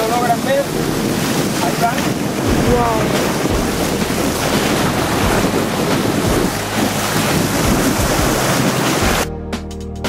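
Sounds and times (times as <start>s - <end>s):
wind buffeting microphone: 0.0s - 9.2s
waves splashing against rocks: 0.0s - 9.3s.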